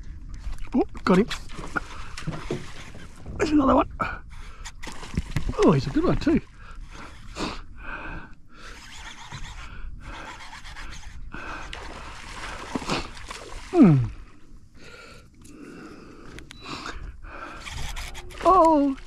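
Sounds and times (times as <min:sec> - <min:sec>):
person groaning: 0:13.7 - 0:14.2.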